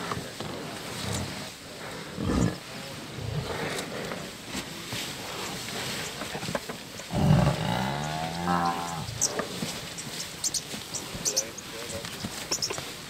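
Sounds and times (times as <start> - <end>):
buffalo bellowing: 7.0 - 9.6.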